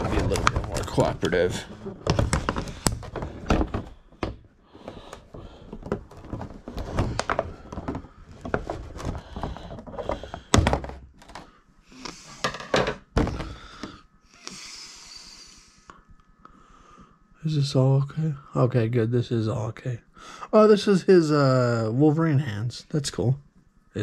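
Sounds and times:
crinkly packaging rustle: 0.0 - 4.1, 5.0 - 10.4.

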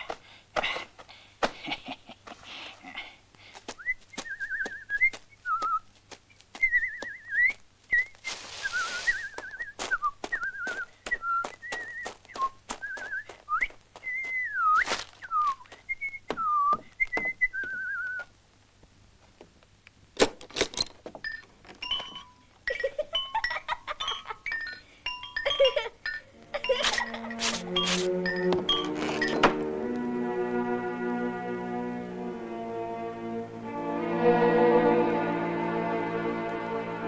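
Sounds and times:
footsteps: 3.3 - 18.2, 26.4 - 30.1
man whistling a tune: 3.8 - 5.8, 6.6 - 18.3.

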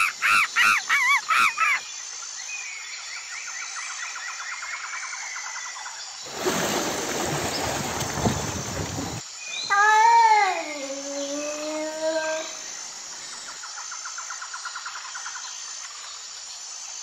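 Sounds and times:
chimpanzee hooting and screaming: 0.0 - 1.8, 9.7 - 12.6.

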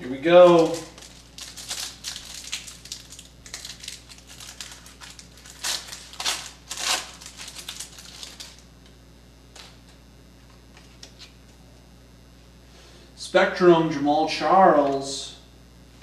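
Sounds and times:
plastic wrapper crinkling: 0.4 - 8.7.

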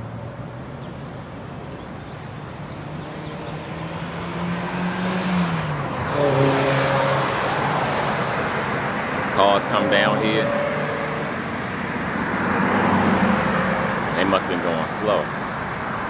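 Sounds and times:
car driving past: 2.6 - 14.2.

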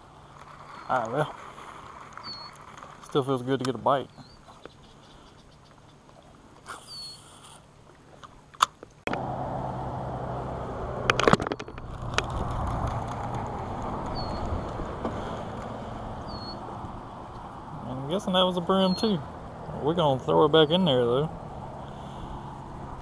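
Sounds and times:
electric trolling motor humming: 9.1 - 23.0.

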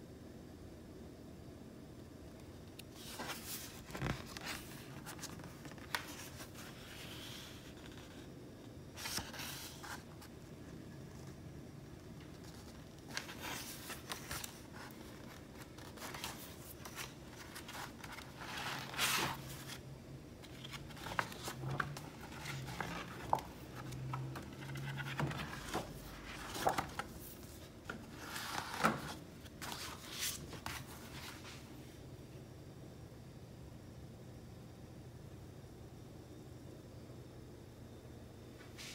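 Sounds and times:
paper pages rustling: 2.8 - 8.3, 8.9 - 31.7.

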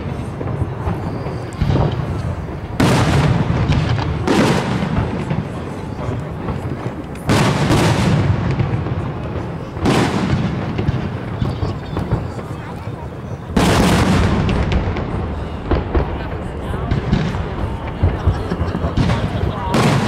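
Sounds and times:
fireworks booming: 0.0 - 20.0.

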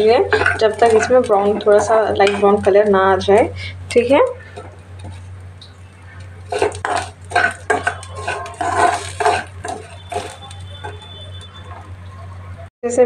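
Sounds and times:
low hum: 0.0 - 12.7
spoon scraping rice in pan: 6.2 - 11.9.

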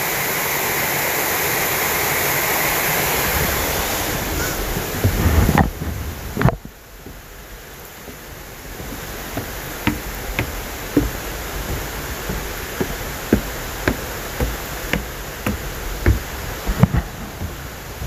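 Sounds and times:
footsteps knocking: 6.4 - 18.0
waterfall rushing: 8.0 - 16.9.

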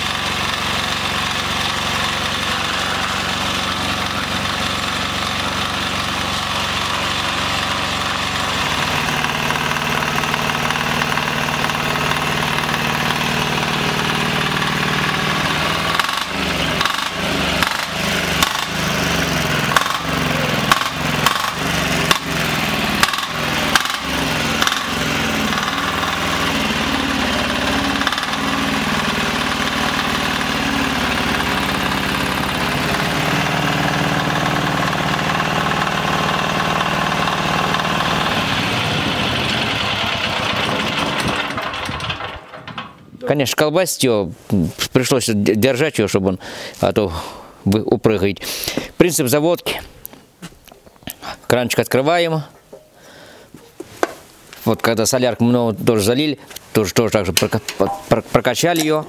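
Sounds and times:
diesel engine running: 0.0 - 43.1
sharp knocks in engine: 14.1 - 19.0, 19.6 - 26.6.

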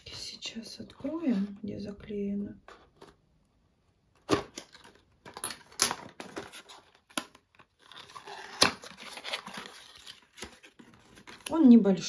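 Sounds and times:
plastic wrap crinkling and tearing: 4.3 - 11.8.

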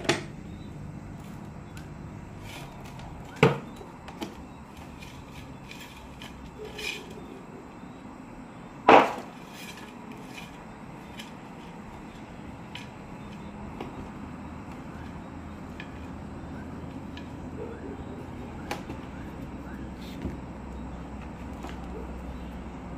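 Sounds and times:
scraping: 2.3 - 7.5, 8.9 - 14.0
loud sharp knocks: 8.9 - 9.3.

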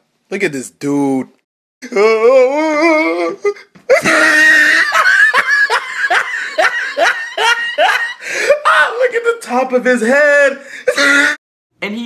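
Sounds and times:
wavering voice: 1.8 - 3.7
loud laughter: 3.9 - 8.8.

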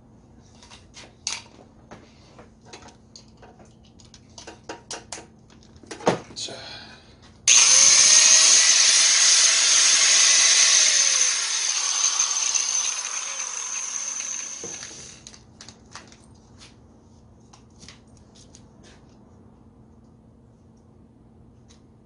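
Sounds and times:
angle grinder motor whine: 7.5 - 15.3.

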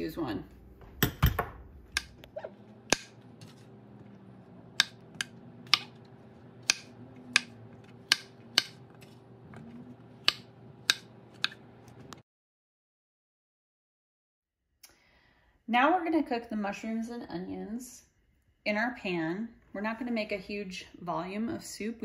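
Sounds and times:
knife chopping on wooden board: 4.7 - 12.2.

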